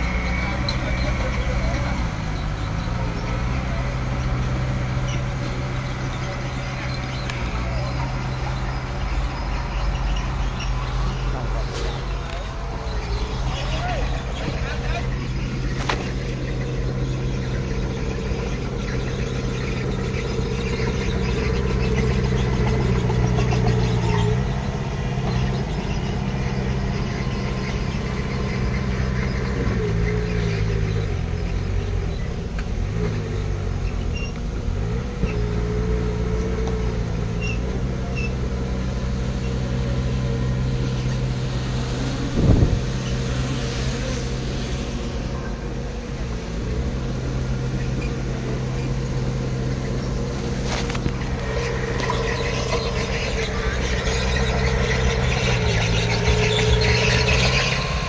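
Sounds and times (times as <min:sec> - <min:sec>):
heavy machinery diesel engine: 0:00.0 - 0:58.0.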